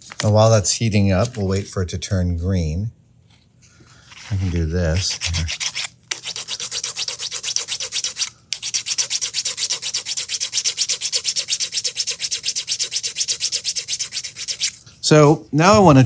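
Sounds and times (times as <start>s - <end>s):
sanding stick rubbing plastic: 4.2s - 14.8s.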